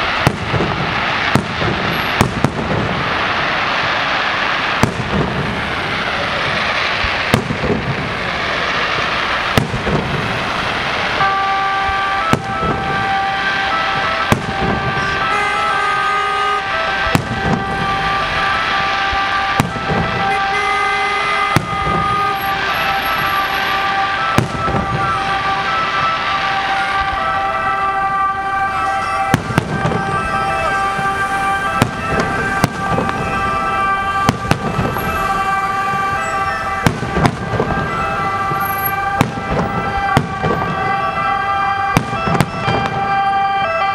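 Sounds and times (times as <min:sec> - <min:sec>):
fireworks bursting with bangs: 0:00.0 - 0:43.9.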